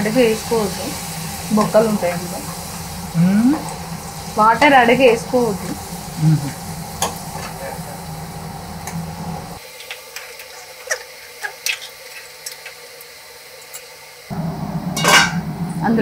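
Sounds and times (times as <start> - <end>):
low hum: 0.0 - 9.6, 14.3 - 16.0
food sizzling in a pot: 0.0 - 16.0.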